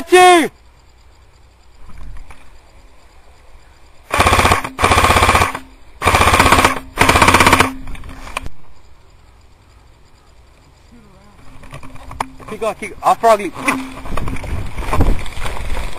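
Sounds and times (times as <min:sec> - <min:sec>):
airsoft rifle full-auto bursts: 0:04.1 - 0:07.8.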